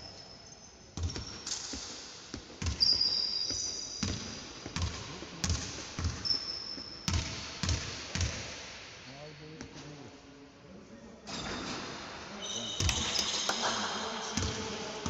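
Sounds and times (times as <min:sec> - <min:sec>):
basketball bouncing on hardwood: 0:01.0 - 0:01.4, 0:02.3 - 0:06.3.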